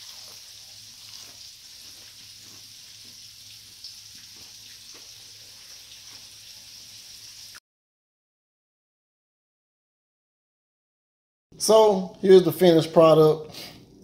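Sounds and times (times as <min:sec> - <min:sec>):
oil sizzling in a frying pan: 0:00.0 - 0:07.6.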